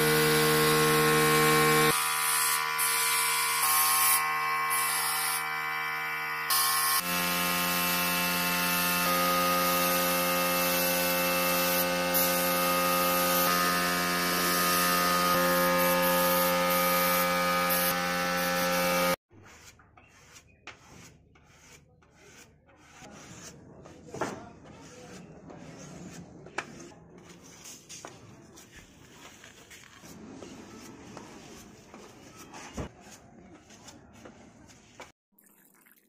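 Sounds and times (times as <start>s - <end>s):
spreader scraping body filler: 19.4s - 35.1s.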